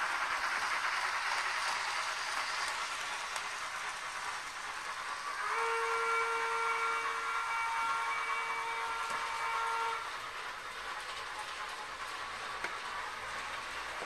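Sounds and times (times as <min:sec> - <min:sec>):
model steam locomotive hiss: 0:00.0 - 0:14.0
steam whistle: 0:05.4 - 0:10.2.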